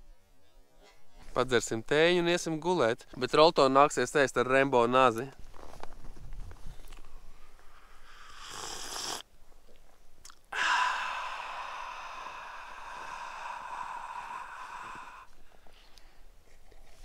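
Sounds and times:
man slurping tea: 0:07.7 - 0:09.3
man sighing aaah: 0:10.5 - 0:15.3.

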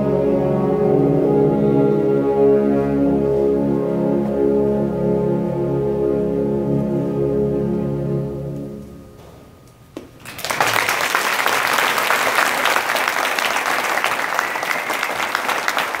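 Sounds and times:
audience applauding: 0:10.2 - 0:16.0.

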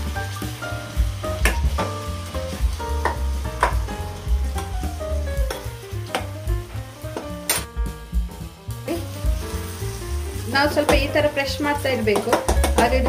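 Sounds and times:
background music with deep bass: 0:00.0 - 0:13.0
tomatoes sizzling in a pan: 0:00.0 - 0:13.0
spoon scraping and knocking pan: 0:12.0 - 0:13.0.

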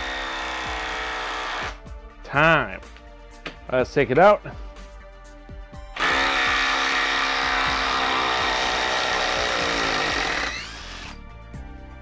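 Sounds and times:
impact driver hammering: 0:06.0 - 0:11.1.

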